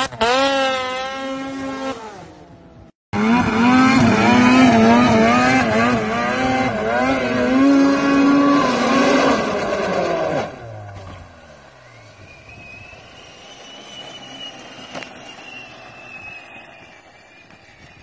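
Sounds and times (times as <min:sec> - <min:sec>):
snowmobile engine revving: 0:00.0 - 0:02.6, 0:03.2 - 0:11.2.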